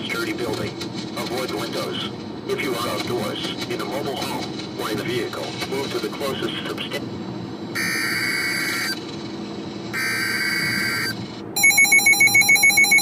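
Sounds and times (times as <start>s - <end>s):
harsh buzzy data bursts: 7.8s - 9.0s, 10.0s - 13.0s
loud rapid alarm beeping: 7.8s - 9.0s, 9.9s - 13.0s.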